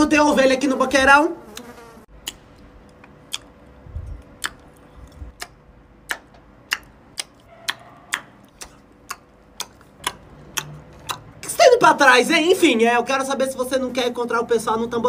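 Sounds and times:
faint steady hum: 0.0s - 15.0s
sharp dry ticks: 1.6s - 11.5s.

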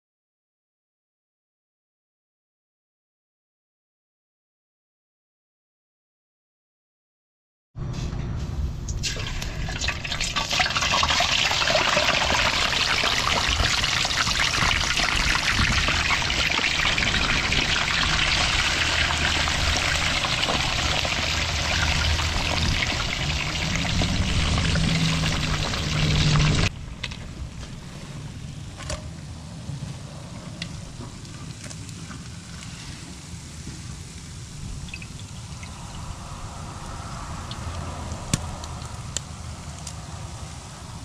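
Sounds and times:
fish deep-frying in hot oil: 9.0s - 26.7s, 31.4s - 36.4s.

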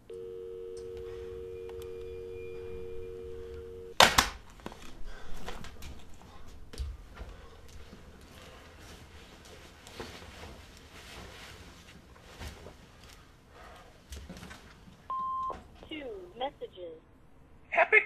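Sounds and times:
telephone dial tone: 0.1s - 4.0s
faint knocks and rustles: 4.6s - 15.1s.

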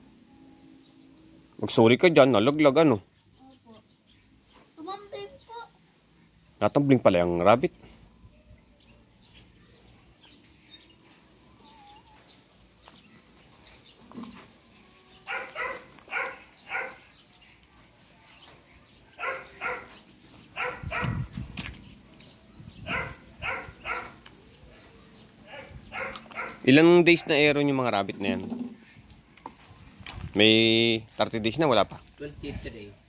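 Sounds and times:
dog barking: 15.3s - 17.0s, 19.2s - 20.0s, 20.6s - 21.2s, 22.9s - 24.2s, 25.5s - 27.5s.

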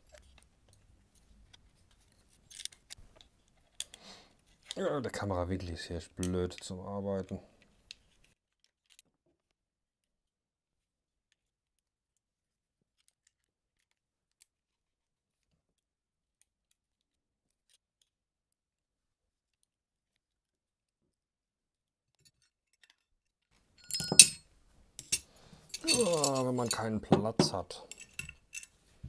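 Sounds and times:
metal parts clattering: 23.8s - 24.4s, 25.0s - 26.9s.

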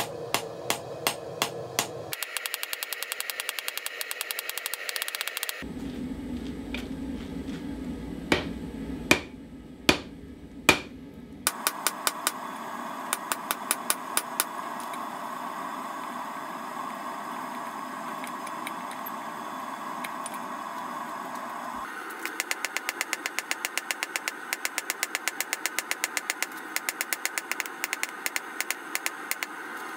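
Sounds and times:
hammer striking hot steel: 0.0s - 5.3s, 8.3s - 12.4s, 13.1s - 14.6s, 22.2s - 29.5s
steady hum: 0.0s - 29.9s.

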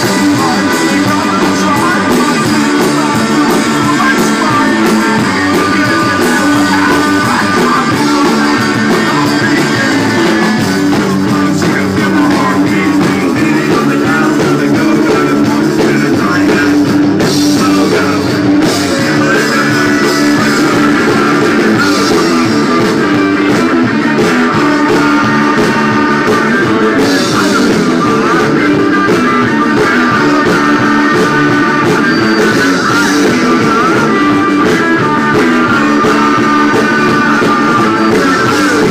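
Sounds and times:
live rock band playing: 0.0s - 38.9s.

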